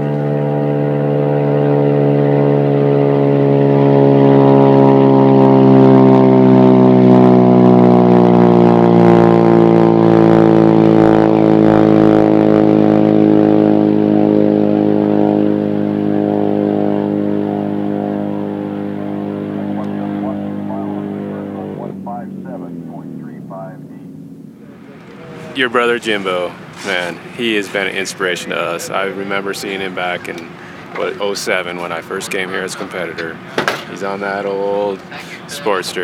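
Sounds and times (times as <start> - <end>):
motorcycle engine revving high: 0.0 - 36.0.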